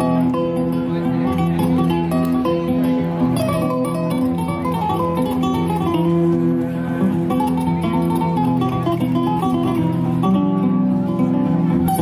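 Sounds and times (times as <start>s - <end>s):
plucked string music: 0.0s - 12.0s.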